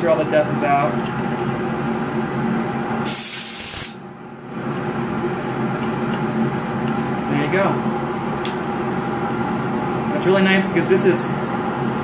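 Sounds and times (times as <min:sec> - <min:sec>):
steady machine hum: 0:00.0 - 0:12.0
compressed air blast: 0:03.0 - 0:04.0.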